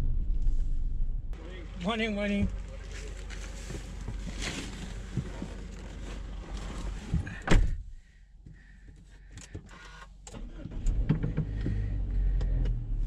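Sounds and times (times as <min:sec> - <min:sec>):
outdoor noise: 0:00.0 - 0:13.0
car door shutting: 0:07.2 - 0:07.8
vehicle running: 0:10.4 - 0:13.0.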